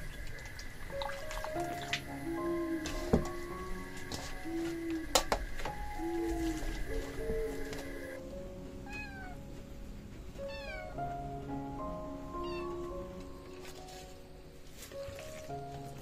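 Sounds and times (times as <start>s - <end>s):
guitar music: 5.7s - 14.9s
cat meowing: 8.8s - 9.5s, 10.4s - 11.0s, 12.3s - 12.9s.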